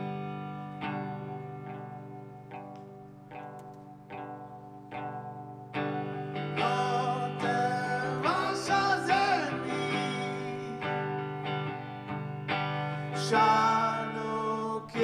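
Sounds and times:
electric guitar chords: 0.0s - 15.0s.

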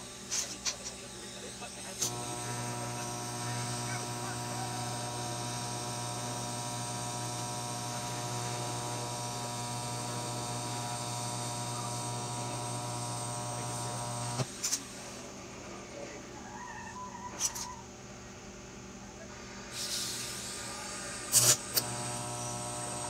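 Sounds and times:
welding arc buzzing: 0.0s - 15.2s, 20.7s - 23.0s.

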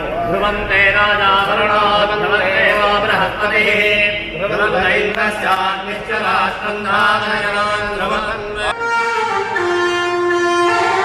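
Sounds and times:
wavering chanting: 0.0s - 8.8s
wind instrument long notes: 8.7s - 11.0s.

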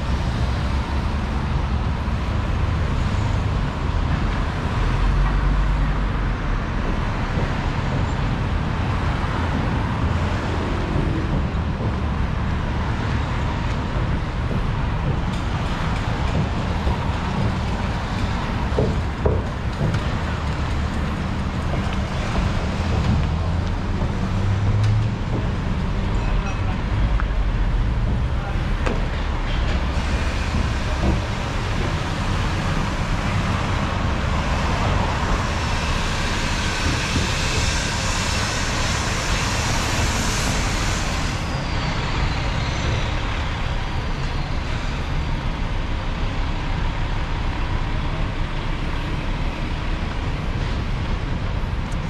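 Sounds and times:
rumble of passing traffic: 0.0s - 52.0s
tyre hiss of passing vehicle: 29.6s - 45.6s.

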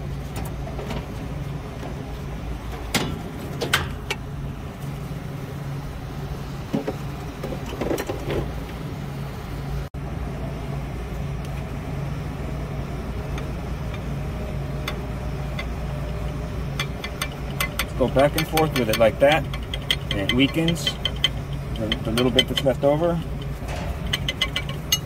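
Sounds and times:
refrigeration machinery hum: 0.0s - 25.0s
tools clicking on copper pipe: 14.8s - 25.0s.

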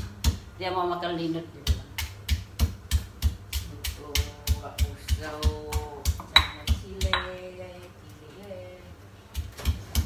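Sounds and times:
pestle pounding in a mortar: 0.0s - 0.5s, 1.6s - 7.5s, 9.3s - 10.0s.

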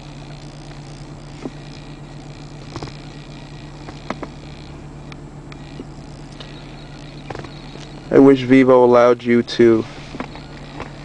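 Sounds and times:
low hum in car cabin: 0.0s - 11.0s
phone tapping clicks: 7.2s - 8.0s.

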